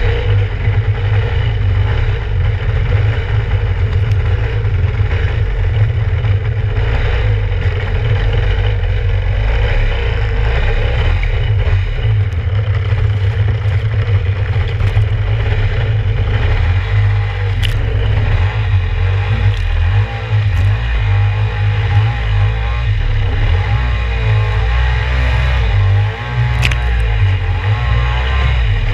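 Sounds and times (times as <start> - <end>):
jet ski engine running: 0.0 - 28.9
water splashing against hull: 12.2 - 16.1, 17.2 - 21.2, 26.4 - 27.4
sharp click: 26.5 - 27.2.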